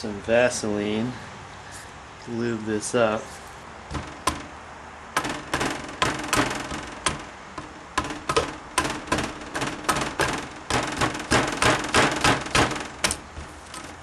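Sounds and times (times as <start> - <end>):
sharp knocks of tool tapping metal: 3.9 - 13.9.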